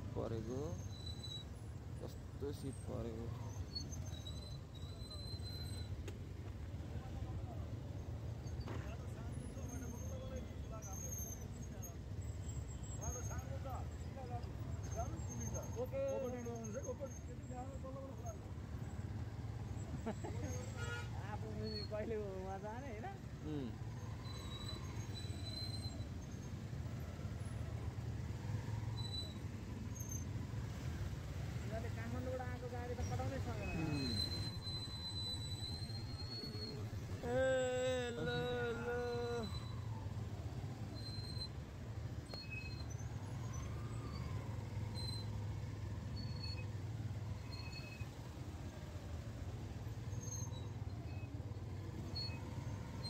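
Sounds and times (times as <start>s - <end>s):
vehicle rumble on road: 0.0s - 53.0s.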